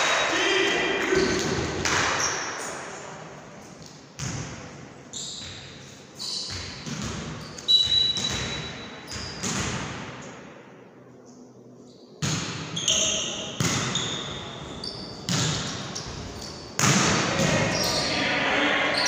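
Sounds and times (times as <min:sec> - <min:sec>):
volleyball smacks echoing in gym: 0:00.0 - 0:02.8, 0:03.8 - 0:05.8, 0:06.4 - 0:10.5, 0:12.2 - 0:14.3, 0:15.2 - 0:17.8.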